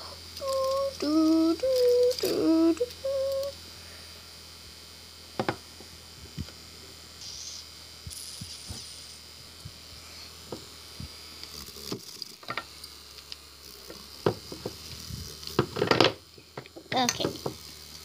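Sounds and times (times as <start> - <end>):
child humming a tune: 0.0 - 3.6.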